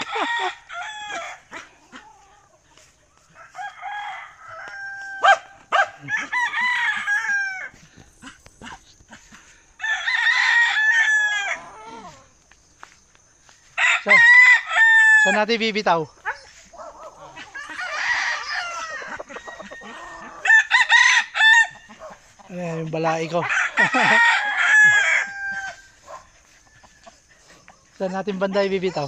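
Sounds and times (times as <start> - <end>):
roosters crowing: 0.0 - 12.7, 13.3 - 29.0.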